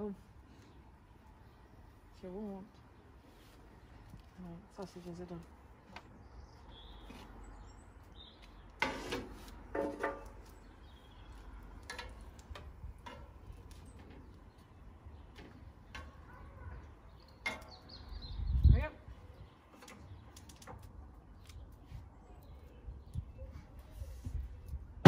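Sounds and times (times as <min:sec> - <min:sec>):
faint bird chirps: 0:06.3 - 0:08.5.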